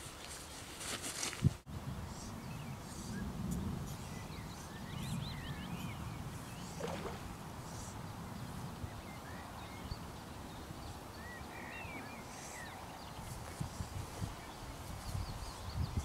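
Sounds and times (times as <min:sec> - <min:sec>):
wind rumble on microphone: 0:01.3 - 0:16.0
birds chirping: 0:01.9 - 0:13.6.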